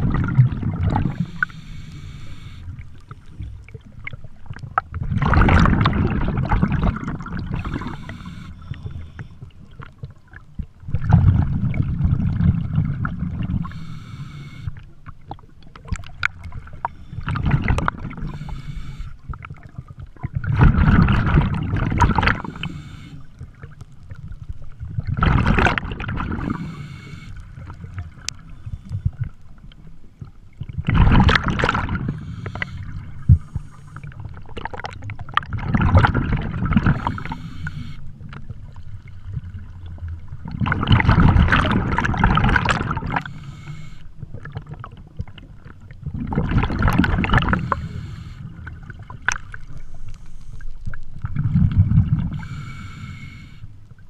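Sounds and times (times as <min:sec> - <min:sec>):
exhaled bubbles gurgling underwater: 0:00.0 - 0:54.0
regulator inhalation hiss: 0:01.1 - 0:02.8, 0:07.6 - 0:09.2, 0:13.6 - 0:14.8, 0:18.2 - 0:19.2, 0:22.4 - 0:23.3, 0:26.5 - 0:27.4, 0:32.1 - 0:34.1, 0:37.0 - 0:38.1, 0:43.2 - 0:44.1, 0:47.5 - 0:48.5, 0:52.3 - 0:53.7.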